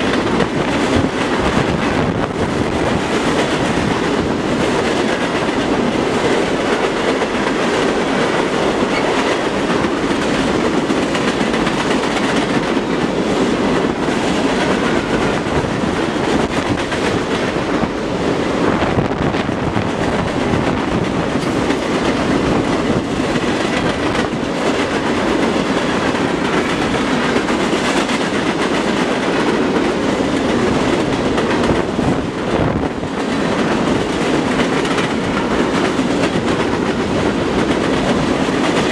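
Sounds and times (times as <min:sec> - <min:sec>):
freight train wheels rumbling: 0:00.0 - 0:38.9.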